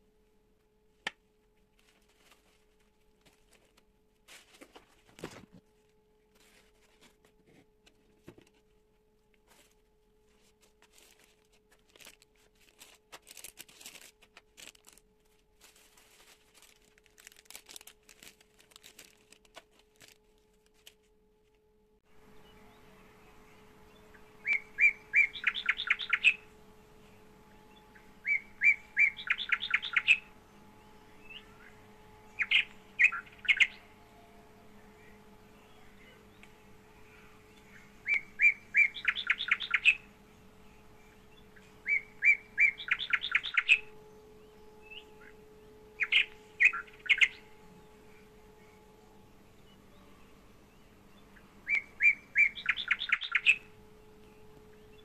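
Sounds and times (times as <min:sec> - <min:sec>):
faint steady hum: 0:00.0 - 0:55.0
songbird singing with trill: 0:22.2 - 0:55.0.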